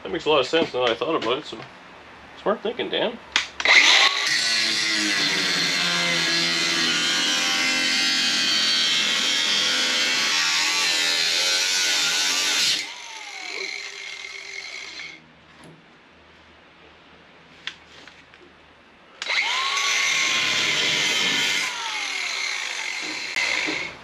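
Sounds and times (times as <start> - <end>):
angle grinder cutting sheet metal: 3.6 - 15.2, 19.2 - 24.0
grinder motor winding down: 3.6 - 15.2, 19.2 - 24.0.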